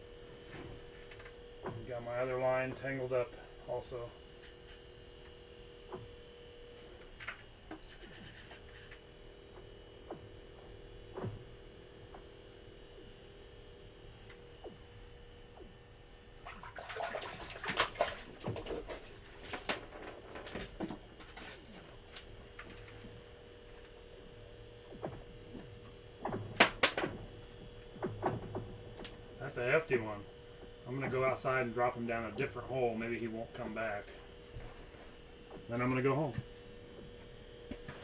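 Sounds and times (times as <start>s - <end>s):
steady hum: 0.0s - 38.0s.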